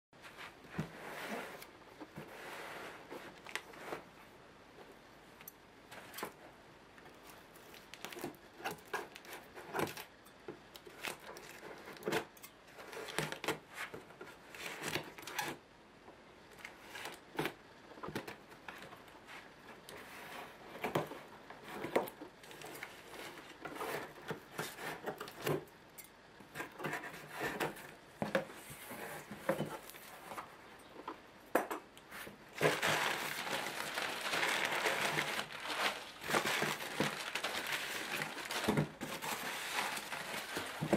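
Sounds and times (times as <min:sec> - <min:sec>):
paper packing rustling: 0:32.2 - 0:40.9
packing tape ripping off box: 0:32.6 - 0:40.9.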